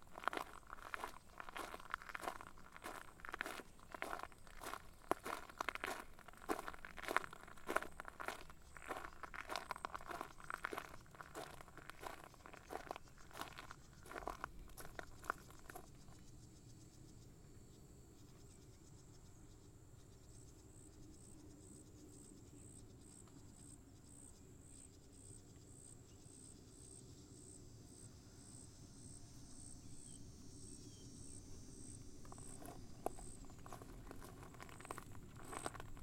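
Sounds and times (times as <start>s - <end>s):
footsteps: 0.0s - 16.0s, 32.2s - 36.0s
faint insect chirping: 0.0s - 36.0s.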